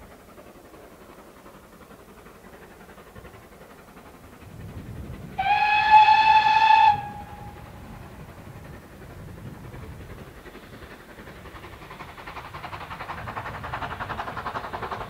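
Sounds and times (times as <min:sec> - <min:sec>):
steam locomotive whistle: 0:05.4 - 0:07.9.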